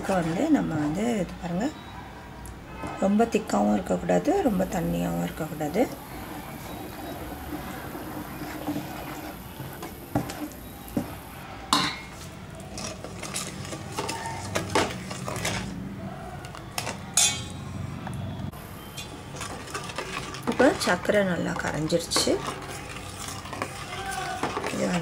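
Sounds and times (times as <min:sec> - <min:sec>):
spoon scraping steel vessel: 0:00.0 - 0:01.9, 0:11.8 - 0:15.8, 0:18.8 - 0:25.0.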